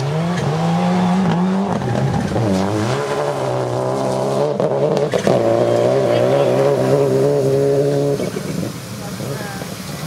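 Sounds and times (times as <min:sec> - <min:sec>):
rally car engine revving: 0:00.0 - 0:09.9.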